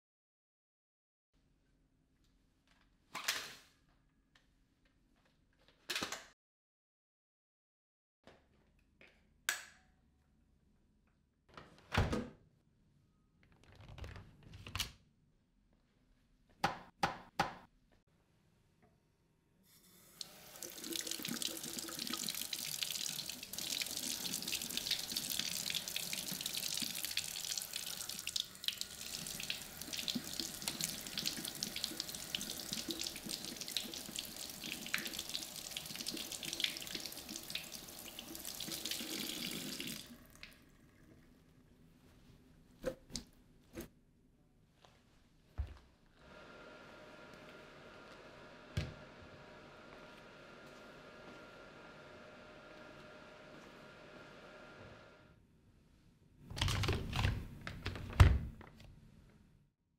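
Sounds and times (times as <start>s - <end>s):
tap water running into sink: 20.1s - 41.2s.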